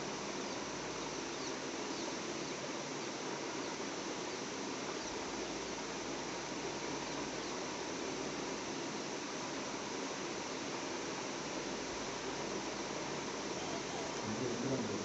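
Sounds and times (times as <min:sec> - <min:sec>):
steady outdoor hiss: 0:00.0 - 0:15.0
faint high chirps: 0:13.5 - 0:15.0.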